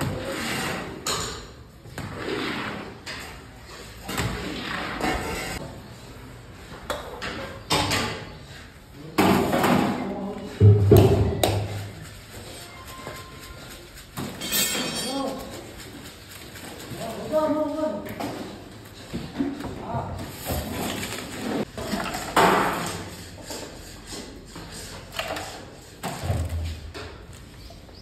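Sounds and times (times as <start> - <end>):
people talking: 16.9 - 18.2.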